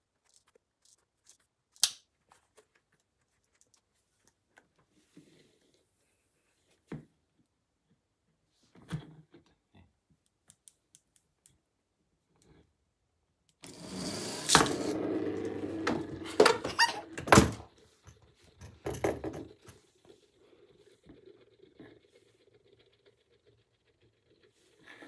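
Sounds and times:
spinning wheels whirring rumble: 0:13.6 - 0:17.2, 0:18.3 - 0:25.0.

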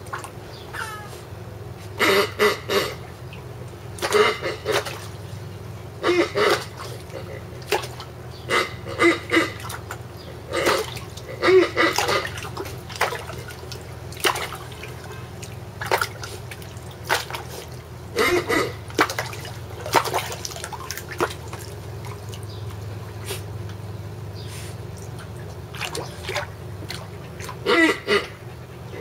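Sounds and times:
dog splashing in water: 0:04.0 - 0:05.2, 0:06.4 - 0:08.1, 0:09.4 - 0:23.5, 0:24.9 - 0:27.7.

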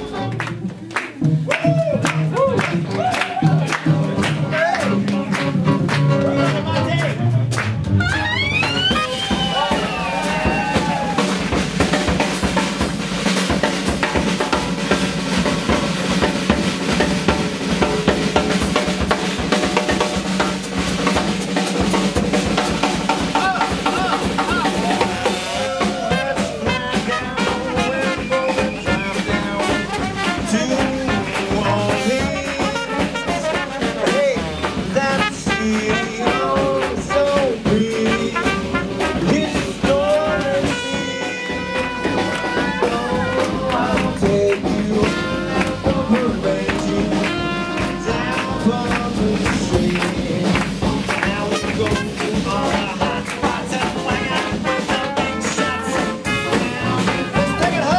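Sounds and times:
trumpet melody: 0:00.0 - 0:00.9, 0:01.6 - 0:20.0, 0:22.4 - 0:57.9
drum kit with snare rimshots: 0:00.0 - 0:57.9
person singing: 0:23.4 - 0:41.3, 0:42.4 - 0:57.9.

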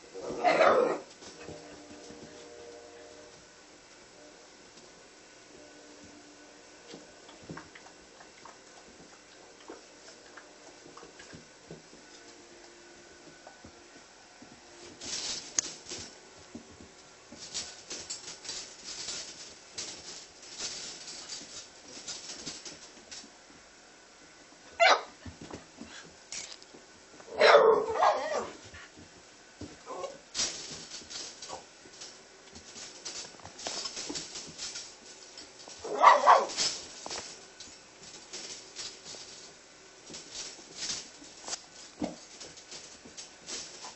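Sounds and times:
puppies' claws scratching on floor: 0:00.2 - 0:03.4, 0:06.8 - 0:23.5, 0:24.8 - 0:43.9
puppy bark: 0:00.3 - 0:01.1, 0:24.8 - 0:25.2, 0:27.3 - 0:28.6, 0:35.8 - 0:36.6.

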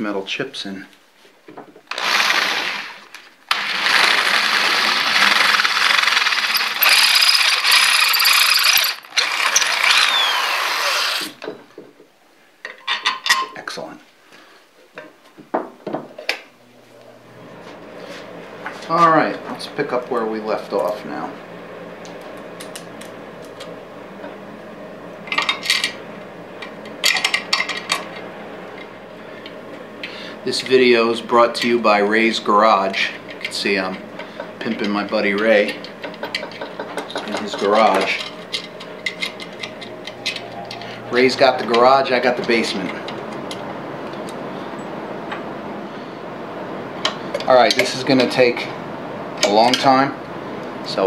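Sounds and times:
drill grinding through steel: 0:01.9 - 0:11.4
metal parts clinking and rattling: 0:05.3 - 0:09.2, 0:35.9 - 0:40.9.

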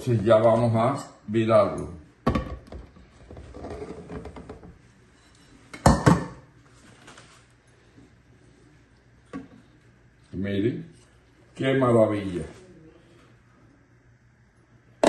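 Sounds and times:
loud knocks on counter: 0:02.2 - 0:02.9.

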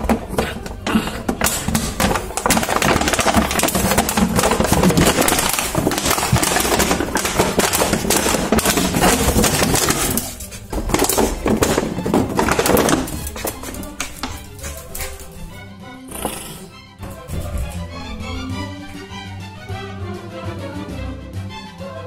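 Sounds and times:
plastic bottle crackling: 0:00.0 - 0:15.4.

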